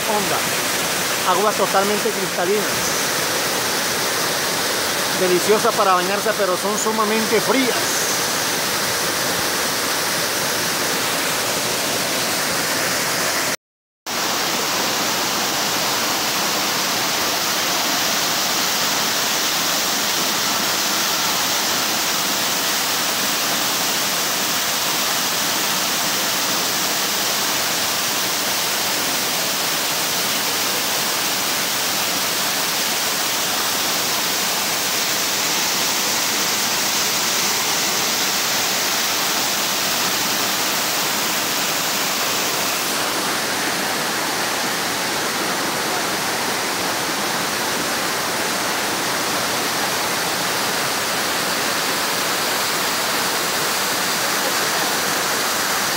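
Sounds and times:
waterfall rushing into pool: 0.0 - 55.9.

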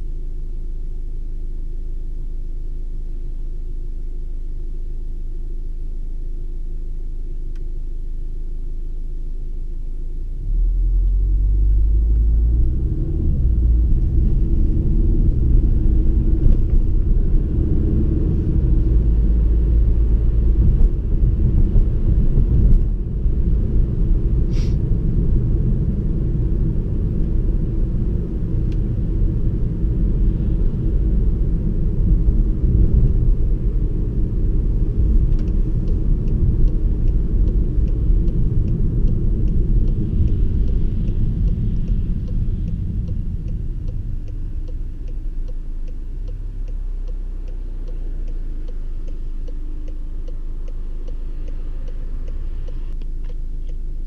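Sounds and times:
car engine and tyres rumbling: 0.0 - 54.0
faint regular ticking: 35.0 - 54.0.

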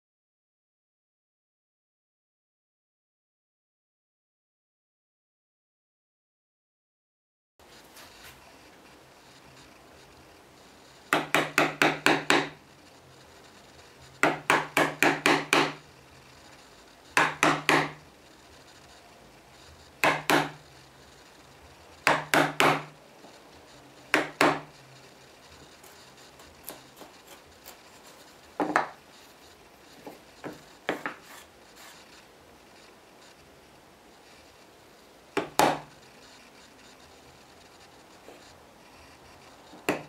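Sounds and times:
chisel cutting into wood: 14.2 - 15.8, 17.2 - 18.0, 20.0 - 20.6.

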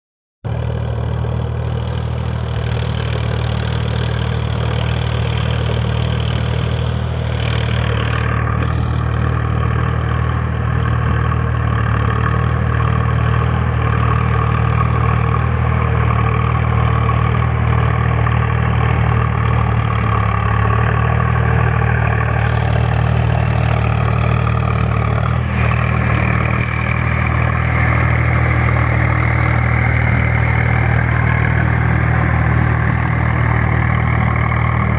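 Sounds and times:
tractor diesel engine running: 0.4 - 34.9.

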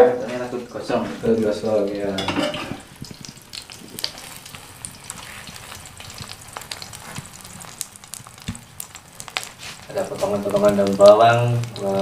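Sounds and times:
omelette sizzling in oil: 0.0 - 12.0
crackling pops: 2.7 - 12.0.

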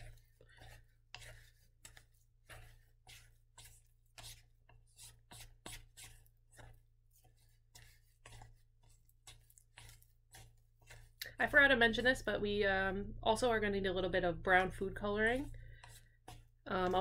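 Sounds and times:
spatula scraping dough in bowl: 0.0 - 12.8, 13.4 - 17.0.

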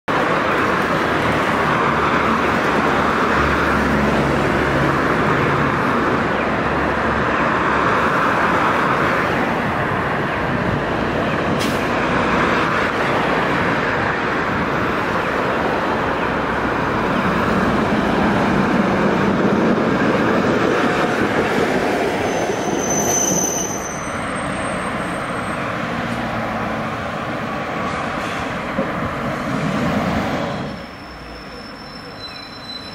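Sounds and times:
road traffic: 0.1 - 32.9
tram rumbling on rails: 0.1 - 32.9
high-pitched squeal: 22.0 - 25.8, 30.4 - 32.9.

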